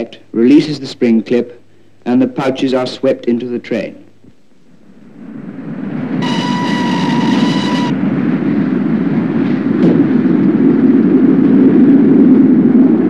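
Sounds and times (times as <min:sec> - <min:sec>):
steam locomotive whistle: 0:06.2 - 0:08.0
train rushing past: 0:06.2 - 0:08.4.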